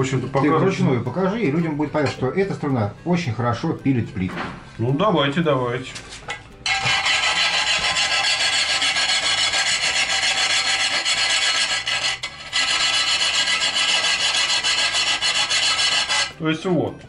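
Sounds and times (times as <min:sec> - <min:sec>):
wire saw rasping through tile: 0:06.6 - 0:16.4.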